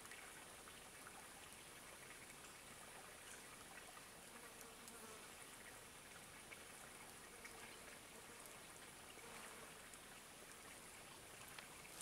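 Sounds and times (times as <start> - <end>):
faint ticks: 3.2 - 12.0.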